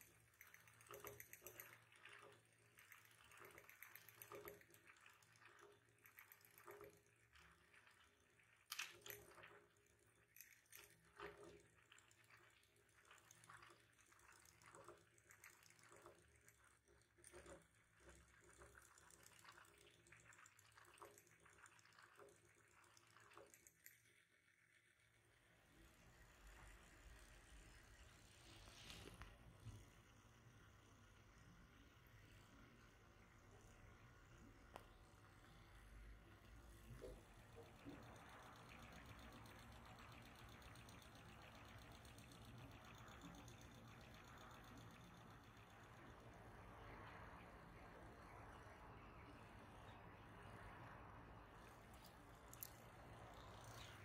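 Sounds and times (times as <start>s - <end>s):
faint ticks and taps: 0.0s - 24.2s, 32.0s - 35.8s, 36.4s - 47.2s.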